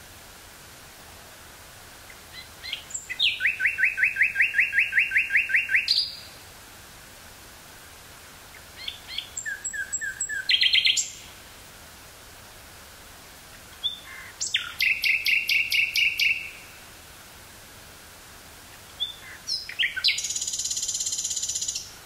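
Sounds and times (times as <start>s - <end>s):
faint tape hiss: 0.0s - 22.0s
nightingale singing: 2.0s - 6.4s, 8.5s - 11.4s, 13.7s - 16.9s, 18.7s - 22.0s.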